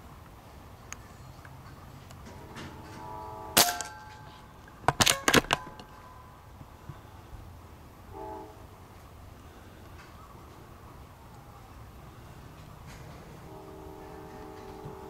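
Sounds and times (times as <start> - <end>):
distant train horn: 1.2 - 4.9, 5.8 - 7.3, 7.9 - 15.0
sharp crack: 3.6 - 6.1.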